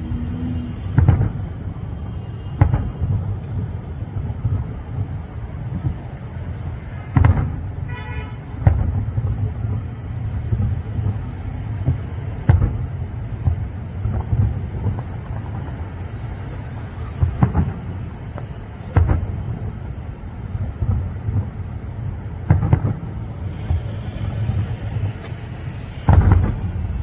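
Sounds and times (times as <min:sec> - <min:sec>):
low city rumble: 0:00.0 - 0:27.0
distant firework booms: 0:00.8 - 0:01.6, 0:07.0 - 0:08.0, 0:08.6 - 0:15.8, 0:16.4 - 0:20.0, 0:20.6 - 0:25.4, 0:26.0 - 0:27.0.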